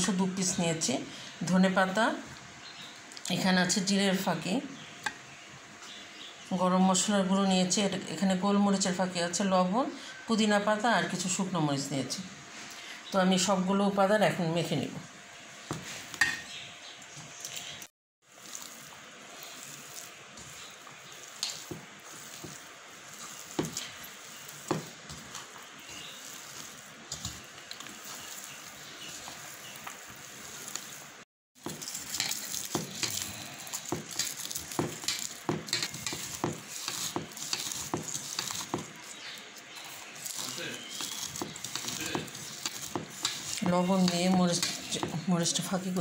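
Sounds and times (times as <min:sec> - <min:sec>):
hand mashing food in a bowl: 0:18.3 - 0:45.5.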